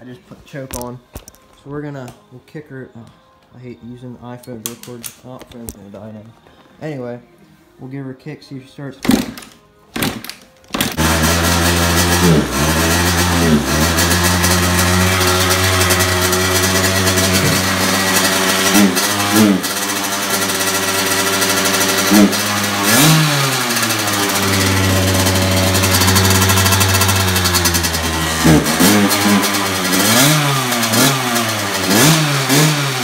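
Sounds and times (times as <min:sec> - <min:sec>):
dirt bike engine starting and running: 0:09.1 - 0:33.0.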